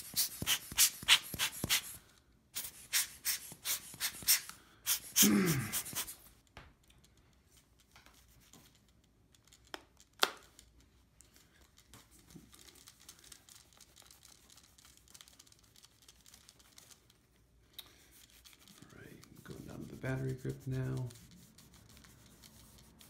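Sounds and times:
cloth rubbing on plastic: 0:18.1 - 0:23.0.

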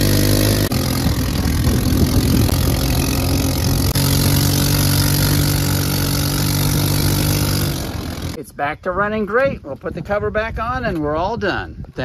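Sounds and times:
go-kart engine running: 0:00.0 - 0:08.4.

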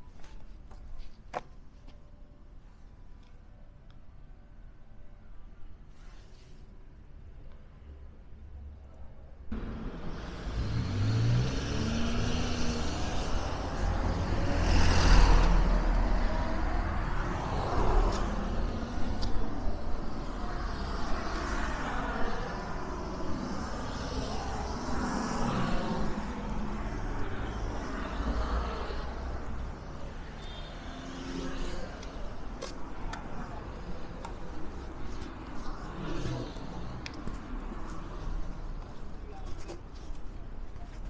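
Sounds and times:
motor vehicles passing: 0:09.5 - 0:39.2.

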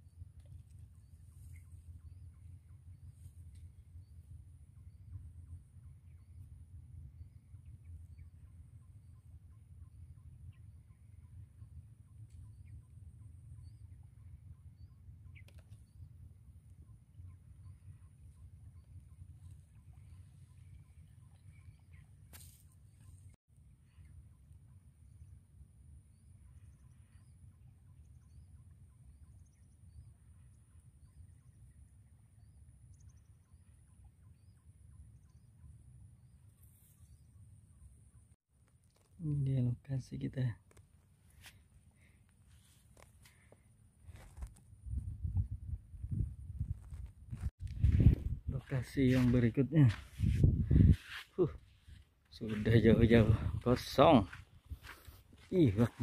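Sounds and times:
small birds chirping: 0:00.0 - 0:25.4, 0:46.1 - 0:56.0
sharp chirp with clicks: 0:14.8 - 0:16.0
wind rumble on microphone: 0:44.1 - 0:56.0.

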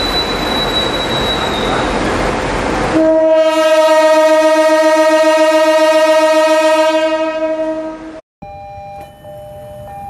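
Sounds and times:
locomotive air horn blast: 0:02.9 - 0:08.2.

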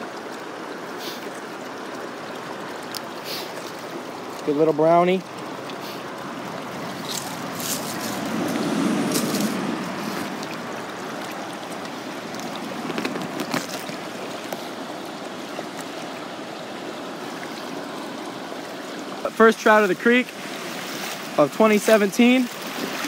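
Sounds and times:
creek water running: 0:00.0 - 0:23.0.

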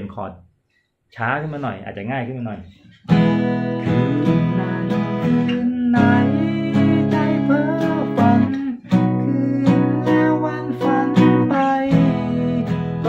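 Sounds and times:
acoustic guitar strumming: 0:02.7 - 0:13.0.

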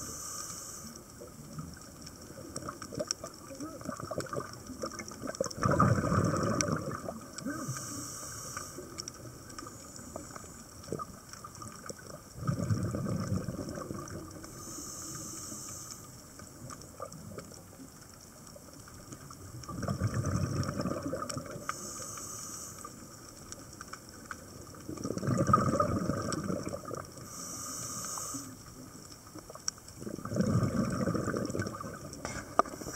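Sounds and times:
regulator inhalation hiss: 0:00.0 - 0:01.1, 0:07.5 - 0:10.7, 0:14.4 - 0:16.3, 0:21.6 - 0:23.2, 0:27.2 - 0:28.8
exhaled bubbles underwater: 0:00.9 - 0:32.9.

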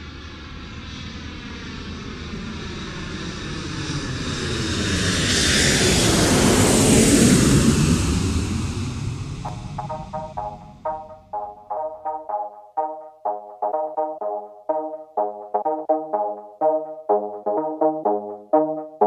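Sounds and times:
plucked synth beat: 0:09.5 - 0:19.0.

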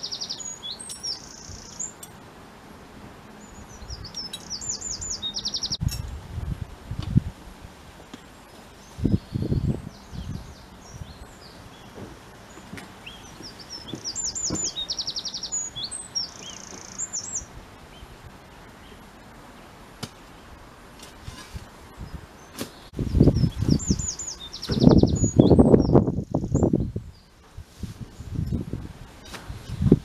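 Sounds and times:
small songbird chirping: 0:00.0 - 0:02.1, 0:03.3 - 0:06.1, 0:08.0 - 0:19.7, 0:21.9 - 0:27.5.

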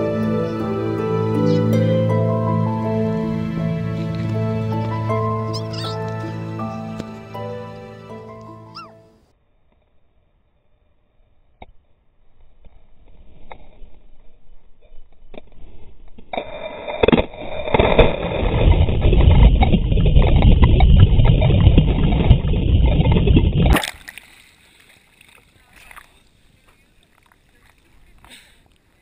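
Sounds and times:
water rushing and churning: 0:16.9 - 0:28.8.

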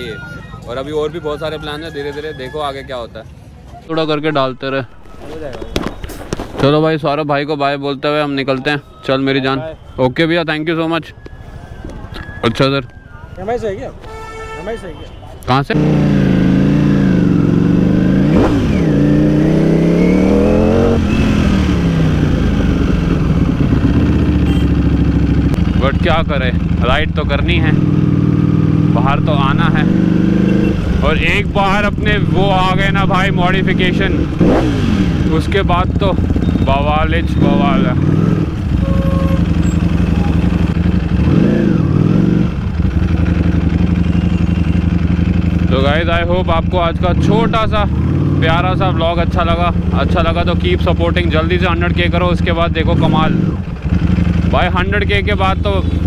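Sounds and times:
motorcycle engine revving: 0:15.7 - 0:56.0.

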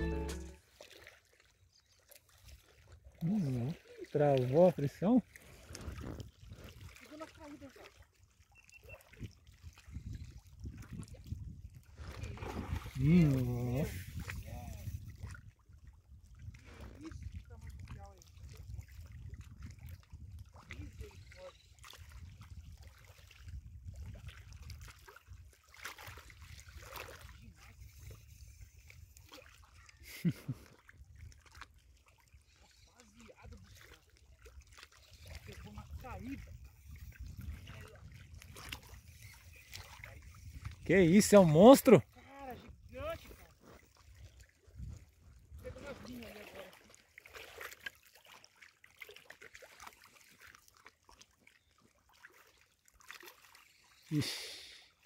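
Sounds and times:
faint water splashing: 0:00.0 - 0:55.0
wind rumbling on microphone: 0:05.7 - 0:06.9, 0:09.2 - 0:21.3, 0:21.9 - 0:25.4, 0:35.3 - 0:40.9, 0:44.1 - 0:45.8.

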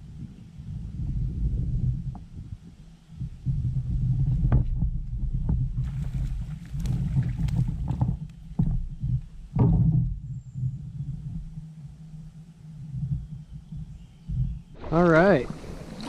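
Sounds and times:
water splashing: 0:14.8 - 0:16.0.

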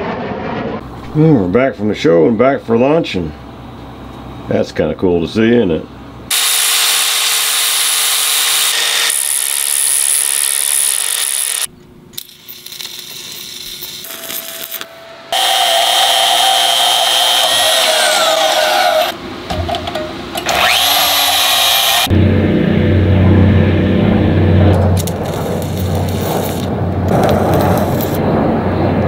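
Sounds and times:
band saw motor whining: 0:06.3 - 0:11.7, 0:14.1 - 0:19.2, 0:20.3 - 0:22.2.

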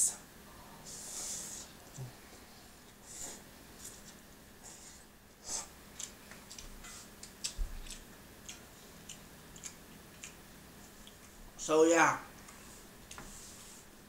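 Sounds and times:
chewing smacks: 0:06.0 - 0:10.4.

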